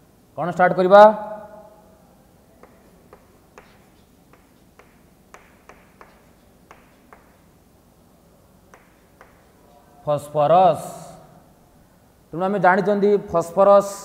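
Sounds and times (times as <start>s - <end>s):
chalk tapping on chalkboard: 2.6s - 7.6s, 8.7s - 9.6s.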